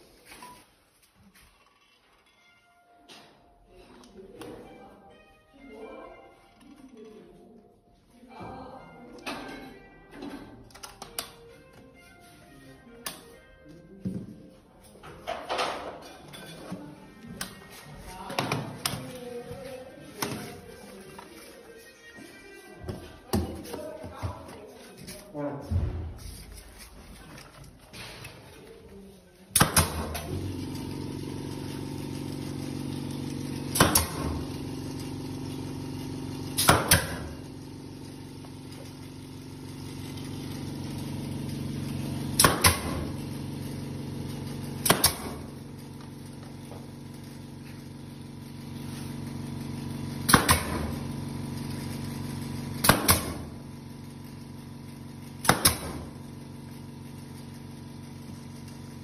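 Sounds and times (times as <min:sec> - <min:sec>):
nail gun firing: 0:29.5 - 0:30.4, 0:33.7 - 0:34.5, 0:36.6 - 0:37.4, 0:42.4 - 0:43.2, 0:44.8 - 0:45.6, 0:50.2 - 0:51.1, 0:52.8 - 0:53.6, 0:55.4 - 0:56.2
steady motor hum: 0:29.6 - 0:59.0.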